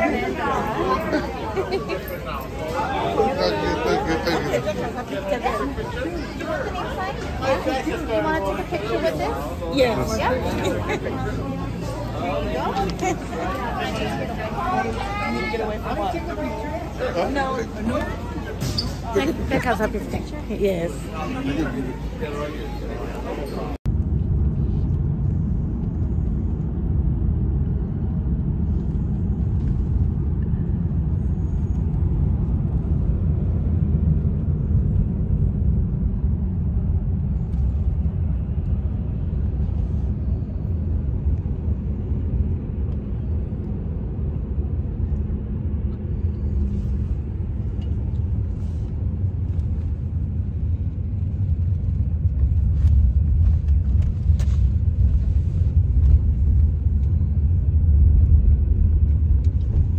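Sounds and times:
car road rumble from inside: 0:23.3 - 0:59.9.

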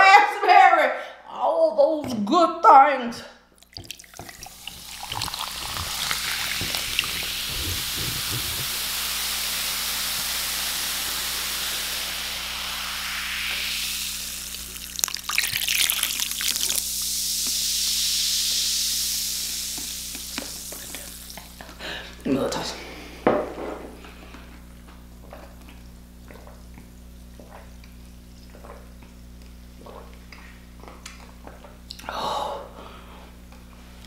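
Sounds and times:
carbonated drink fizzing: 0:03.6 - 0:21.8.

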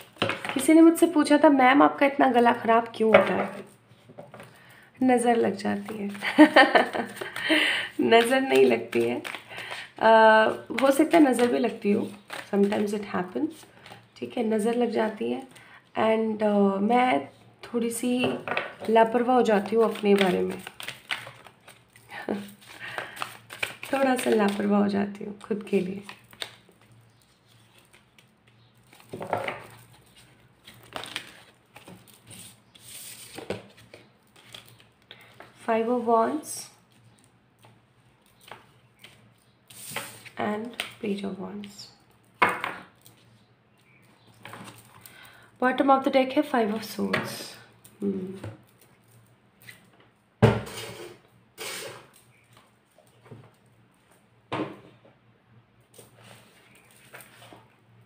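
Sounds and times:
cards rustling and tapping: 0:05.8 - 0:14.1, 0:18.2 - 0:24.7, 0:25.4 - 0:35.6
cards being handled on a table: 0:10.7 - 0:12.9.

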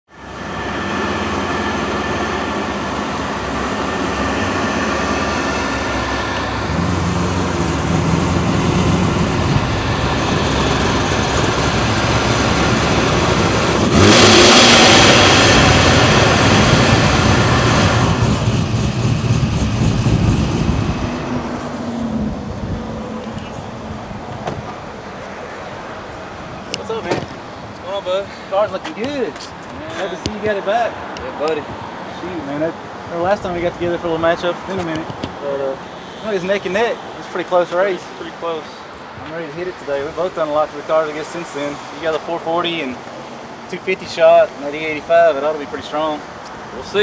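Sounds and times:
car engine accelerating: 0:00.2 - 0:24.8.

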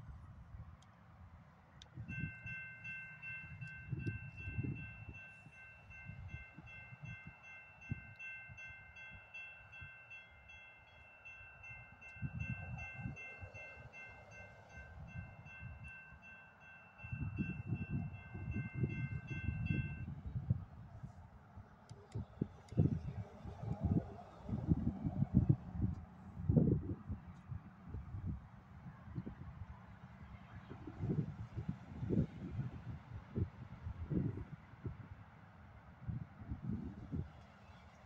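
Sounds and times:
wind buffeting microphone: 0:01.9 - 0:08.9, 0:12.2 - 0:13.6, 0:17.0 - 0:35.3, 0:35.9 - 0:37.4
crossing bell ringing: 0:02.0 - 0:20.2.

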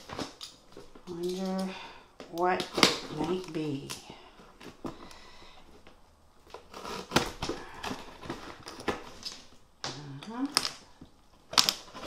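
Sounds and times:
box cutter slicing packing tape: 0:06.5 - 0:07.7.

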